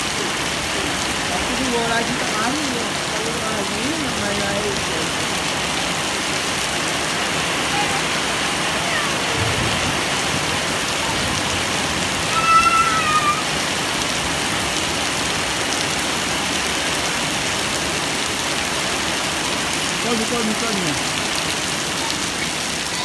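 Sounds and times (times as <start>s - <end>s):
heavy rain on gravel and concrete: 0.0s - 23.0s
child calling out: 7.6s - 9.7s, 12.2s - 13.6s.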